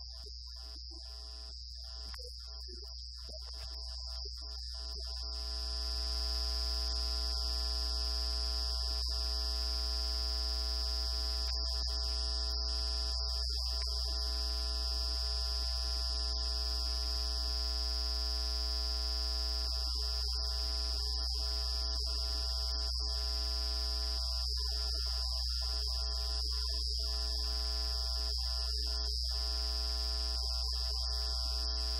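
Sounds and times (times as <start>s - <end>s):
high steady whine: 0.0s - 24.9s.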